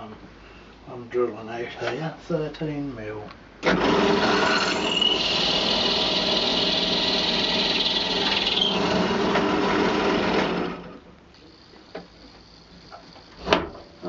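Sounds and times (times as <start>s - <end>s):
pillar drill boring into horn: 3.7s - 11.0s.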